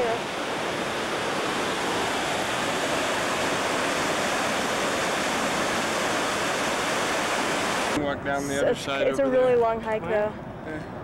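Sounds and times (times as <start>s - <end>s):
waterfall rushing over rocks: 0.0s - 8.0s.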